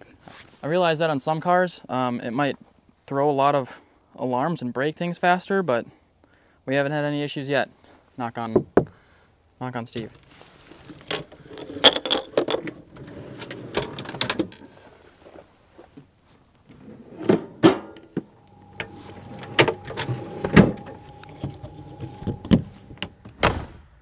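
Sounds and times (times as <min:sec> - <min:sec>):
storage drawer pulled open: 0:10.2 - 0:15.5, 0:16.7 - 0:23.0
hatch latches clicking and rattling: 0:10.8 - 0:14.7, 0:17.9 - 0:23.1.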